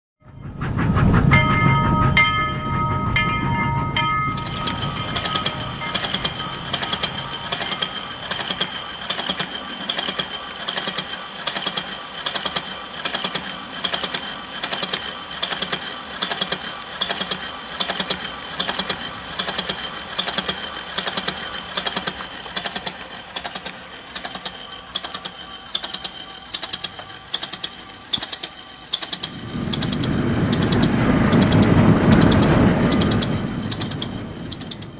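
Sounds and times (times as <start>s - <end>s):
low rumble: 0.2s - 8.3s, 29.4s - 34.9s
mechanism clicking and clacking: 4.3s - 34.9s.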